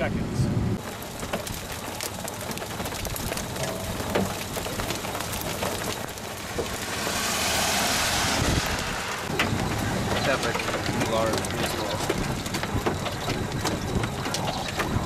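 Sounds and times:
rain and hail pattering: 0:00.8 - 0:15.0
rushing hiss: 0:06.8 - 0:09.3.

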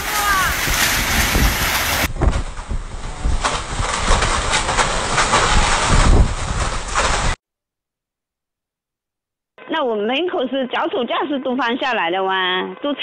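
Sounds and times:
wind buffeting microphone: 0:00.0 - 0:07.4
sharp knocks and rattles: 0:00.6 - 0:07.4.

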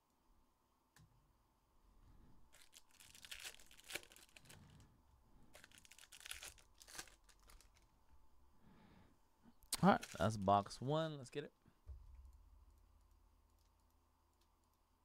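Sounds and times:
packaging crinkling and tearing: 0:02.5 - 0:04.7, 0:05.5 - 0:07.9, 0:09.8 - 0:10.4.

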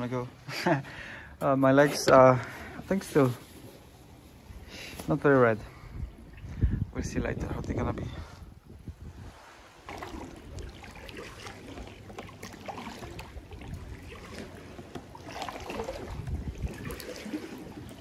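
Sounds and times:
water splashing and sloshing: 0:00.0 - 0:18.0
paddle stroke splashes: 0:09.2 - 0:18.0.

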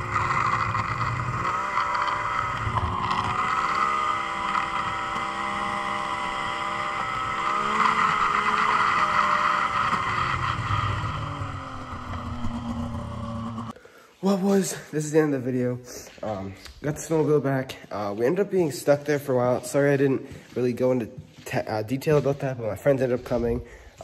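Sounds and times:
snowmobile engine running: 0:00.0 - 0:13.8.

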